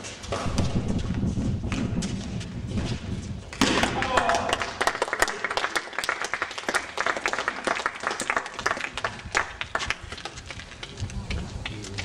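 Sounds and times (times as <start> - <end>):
spectators applauding: 4.0 - 10.5.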